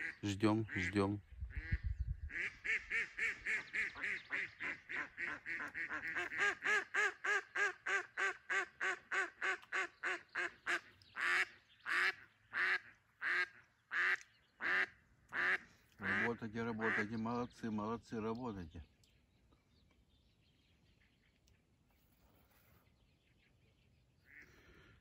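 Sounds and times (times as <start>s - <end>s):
duck quacking: 0.0s - 17.2s.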